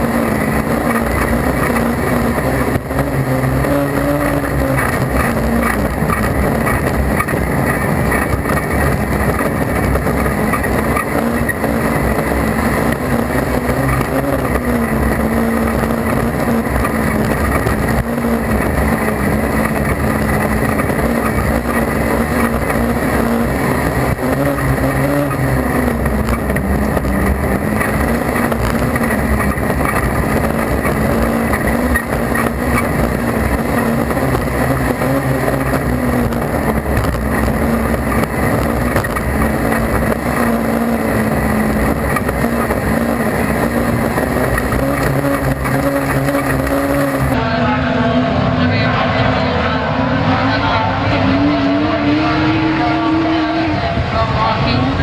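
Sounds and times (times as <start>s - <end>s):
racing car engine revving: 0.0s - 55.0s
steady rush of noise: 0.0s - 55.0s.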